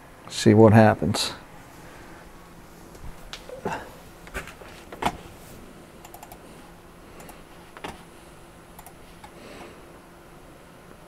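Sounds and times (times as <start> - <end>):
faint hum of fans: 0.0 - 11.0
computer mouse and keyboard clicks: 6.0 - 6.4, 8.8 - 9.4.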